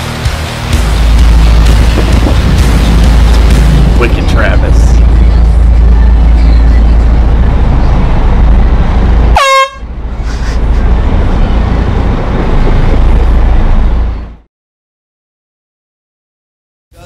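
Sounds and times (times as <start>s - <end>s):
heavy low rumble: 0.0s - 14.5s
air horn blast dropping in pitch: 9.3s - 9.9s.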